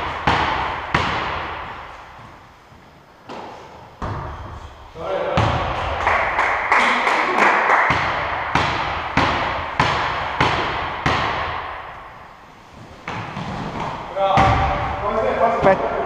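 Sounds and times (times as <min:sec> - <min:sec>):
basketball bouncing on indoor court: 0:00.0 - 0:02.4, 0:03.3 - 0:06.3, 0:07.9 - 0:12.3, 0:13.0 - 0:15.2.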